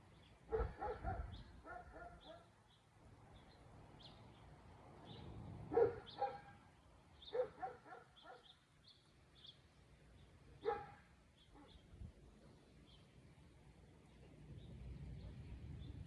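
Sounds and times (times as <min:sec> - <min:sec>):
dog barking: 0:00.5 - 0:02.5, 0:05.7 - 0:06.6, 0:07.3 - 0:08.5, 0:10.6 - 0:11.8.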